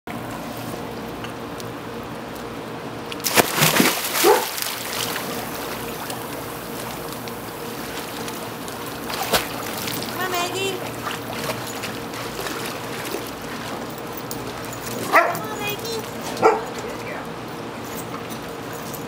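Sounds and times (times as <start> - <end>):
water sloshing and lapping: 3.1 - 17.2
loud splashes: 3.2 - 13.7.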